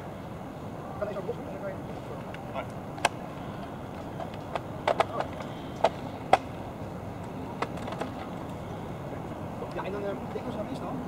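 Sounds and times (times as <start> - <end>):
steady low background noise: 0.0 - 11.0.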